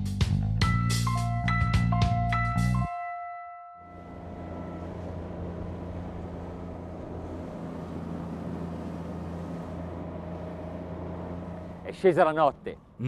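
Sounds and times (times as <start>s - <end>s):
outboard motor running: 3.9s - 13.0s
water rushing: 3.9s - 13.0s
wind: 3.9s - 13.0s.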